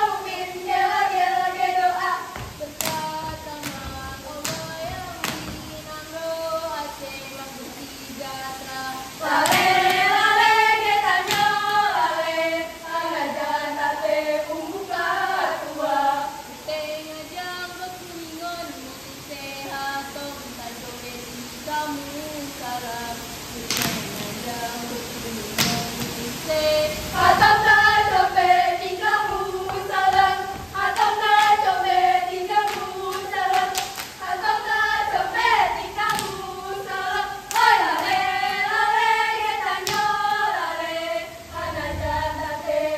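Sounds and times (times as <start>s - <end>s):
girls singing and chanting: 0.0s - 42.9s
hand slaps: 2.4s - 5.7s, 9.4s - 10.0s, 11.2s - 11.6s, 23.7s - 24.3s, 25.6s - 26.2s, 36.0s - 36.5s, 39.8s - 40.2s.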